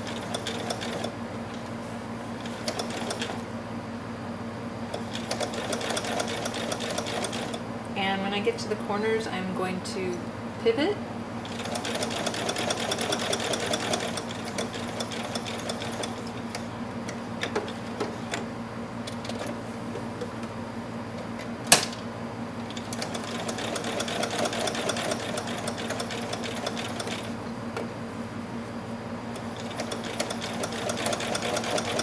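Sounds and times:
sewing machine stitching: 0.0s - 1.2s, 2.4s - 3.4s, 4.9s - 7.6s, 11.4s - 16.6s, 22.7s - 27.4s, 29.4s - 32.0s.

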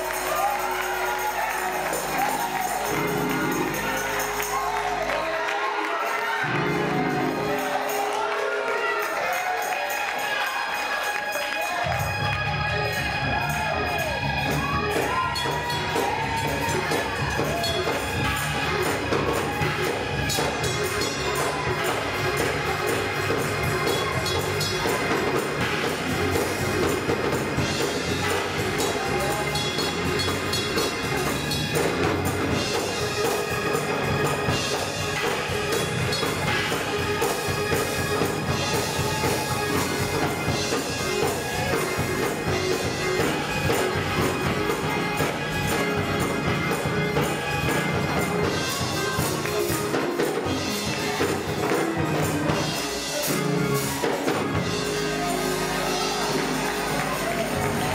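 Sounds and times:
hands clapping: 0.0s - 12.6s, 46.6s - 57.9s
band with percussion: 0.0s - 57.9s
gospel choir singing: 0.0s - 57.9s.

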